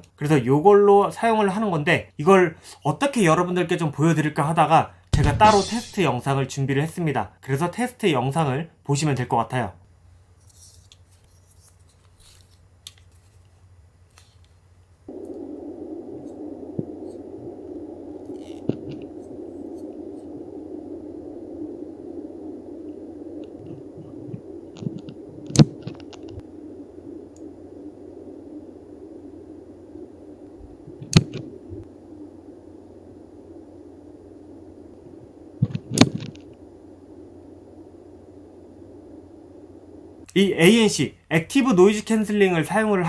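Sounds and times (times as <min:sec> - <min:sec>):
muffled low noise: 0:05.2 - 0:06.3, 0:15.1 - 0:40.9
sharp clicks: 0:23.4 - 0:26.4, 0:31.0 - 0:31.9, 0:35.6 - 0:36.6.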